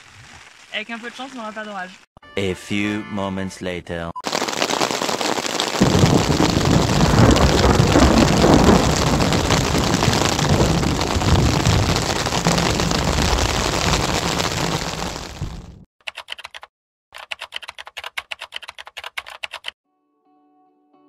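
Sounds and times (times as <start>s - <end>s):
heavy rain on tent fabric: 4.2s - 15.8s
deep low rumble: 5.8s - 15.8s.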